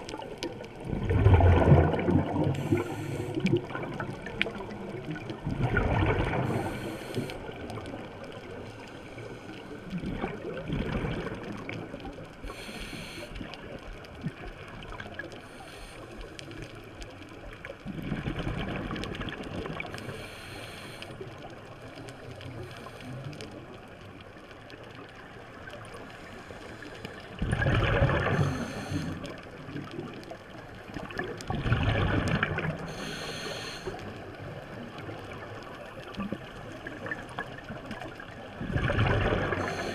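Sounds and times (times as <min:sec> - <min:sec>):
bubbles gurgling on exhale: 0:00.0 - 0:08.1, 0:09.8 - 0:12.2, 0:17.8 - 0:20.0, 0:27.4 - 0:30.2, 0:30.9 - 0:33.0, 0:34.5 - 0:39.9
regulator inhale hiss: 0:02.5 - 0:03.5, 0:06.4 - 0:07.6, 0:08.7 - 0:09.8, 0:12.4 - 0:13.6, 0:15.4 - 0:16.6, 0:20.0 - 0:21.4, 0:26.1 - 0:27.4, 0:28.2 - 0:29.4, 0:32.9 - 0:34.1, 0:39.5 - 0:39.9.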